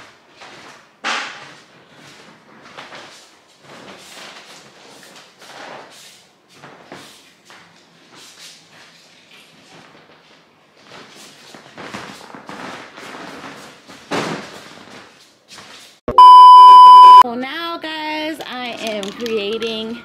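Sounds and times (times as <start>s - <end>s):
test-tone beep: 16.1s - 17.2s.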